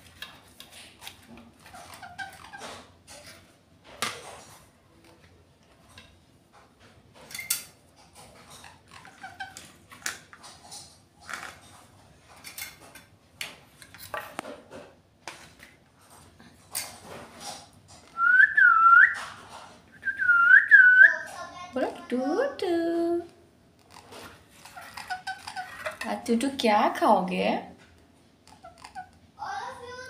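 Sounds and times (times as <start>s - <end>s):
parakeet chirps and clicks: 24.6s - 26.0s, 28.5s - 29.2s.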